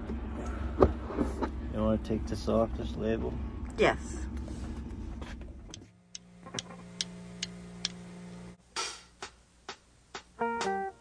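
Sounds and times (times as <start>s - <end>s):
low rumbling: 0.0s - 8.6s
steady hum: 0.0s - 10.1s
regular ticking: 5.6s - 8.0s.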